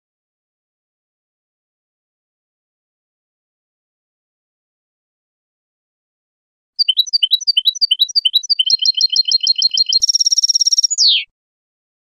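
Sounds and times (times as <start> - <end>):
goldfinch song: 6.8 - 11.3.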